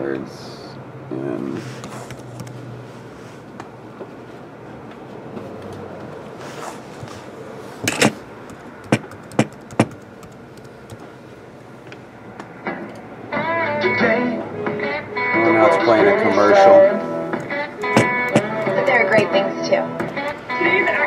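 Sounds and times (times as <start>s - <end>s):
sharp keyboard clicks: 7.9s - 11.1s
keyboard key clicks: 8.9s - 11.0s.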